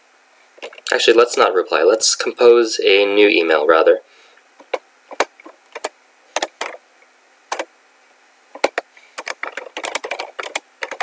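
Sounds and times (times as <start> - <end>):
laptop keyboard typing: 4.6 - 6.8, 8.6 - 11.0.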